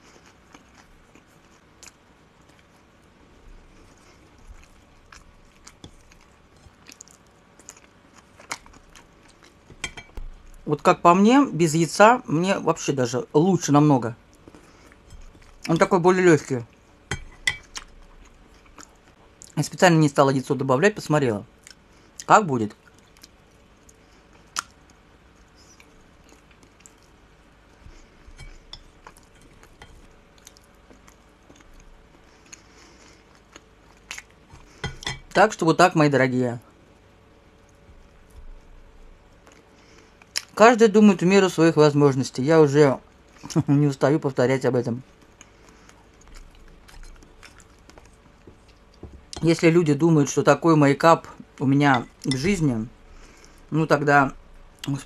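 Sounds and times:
person chewing food: 0:00.0 - 0:10.7, 0:14.2 - 0:15.9, 0:16.6 - 0:19.6, 0:21.6 - 0:35.4, 0:37.0 - 0:40.6, 0:45.0 - 0:49.5.

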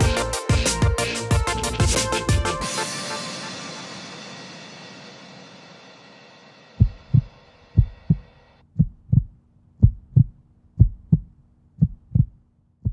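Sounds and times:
heartbeat thumps: 0:00.0 - 0:02.5, 0:06.8 - 0:12.9
electronic music: 0:00.0 - 0:05.5.

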